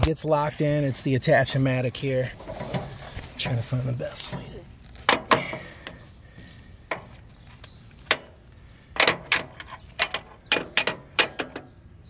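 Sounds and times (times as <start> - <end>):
metal clicks and clanks: 4.3 - 6.0, 6.9 - 11.8
metal knocks: 9.0 - 11.8.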